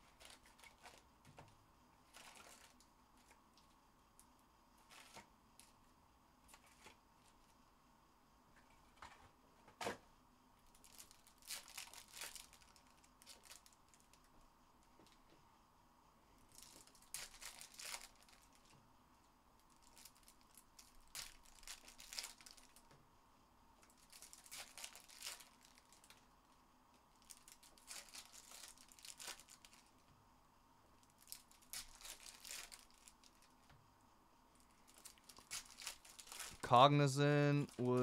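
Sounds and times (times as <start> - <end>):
foil wrappers crinkling: 0.0 - 1.0, 2.1 - 3.4, 4.8 - 5.7, 10.7 - 14.3, 16.5 - 18.7, 19.7 - 22.9, 23.8 - 26.2, 27.2 - 30.0, 31.0 - 33.6, 34.6 - 36.9, 37.5 - 38.0
packs torn open: 10.9 - 14.2, 16.6 - 18.6, 19.9 - 22.8, 24.0 - 26.2, 27.2 - 29.8, 31.2 - 33.5, 34.9 - 36.6.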